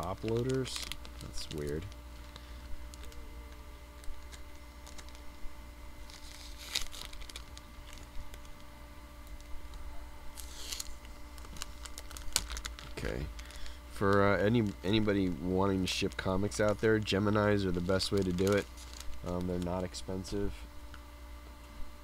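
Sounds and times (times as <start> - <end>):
plastic crinkling: 0.0 - 5.4, 6.0 - 15.1, 15.8 - 20.3
tape peeling off plastic: 0.0 - 5.4, 6.0 - 9.8, 10.4 - 14.2, 17.8 - 19.9.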